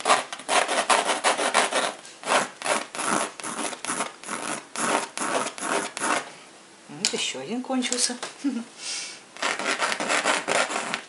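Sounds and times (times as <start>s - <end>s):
pencil scratching on canvas: 0.0s - 6.3s, 9.4s - 11.0s.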